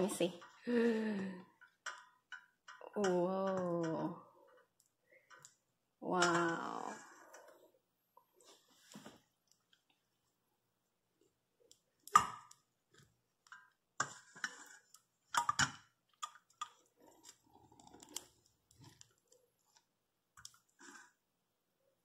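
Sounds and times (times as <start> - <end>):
honeycomb crackling and clicking: 11.7 - 21.1.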